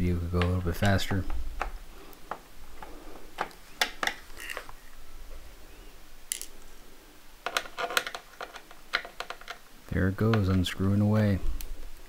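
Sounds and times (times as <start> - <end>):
screwdriver clicking and scraping: 0.8 - 4.7, 7.5 - 9.6.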